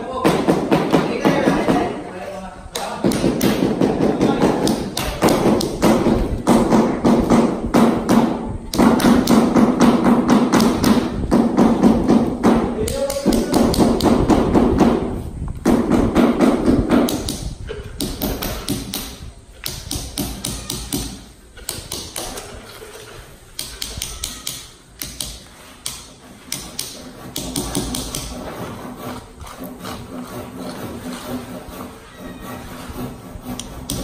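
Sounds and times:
hammer striking chisel on concrete: 0:02.7 - 0:15.1, 0:15.7 - 0:22.4, 0:23.6 - 0:28.4, 0:33.0 - 0:34.0.

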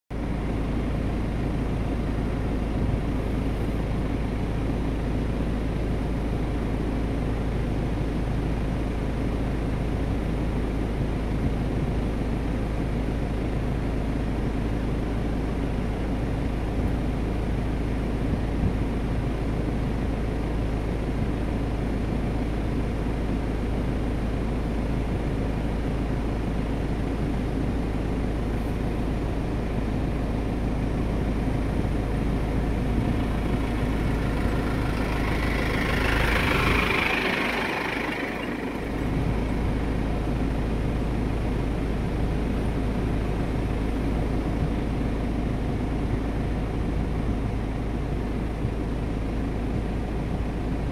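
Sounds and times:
low rumble: 0:30.9 - 0:41.7.

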